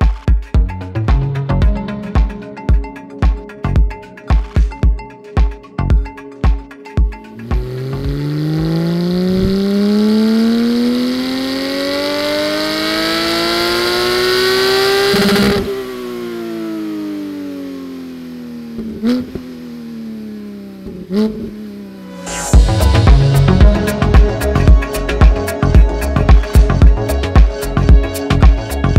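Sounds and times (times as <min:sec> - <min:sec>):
car engine revving on a dyno: 0:07.4 - 0:23.6.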